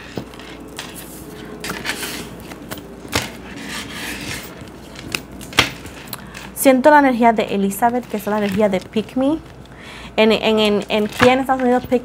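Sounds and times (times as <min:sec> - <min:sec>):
cards shuffling: 0:00.0 - 0:06.6.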